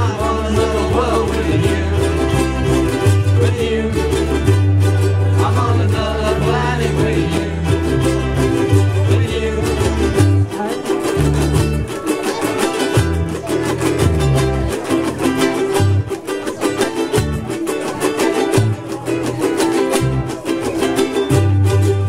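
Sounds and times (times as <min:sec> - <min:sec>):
low bass line: 0:00.0 - 0:16.1
ukuleles strumming: 0:00.0 - 0:22.0.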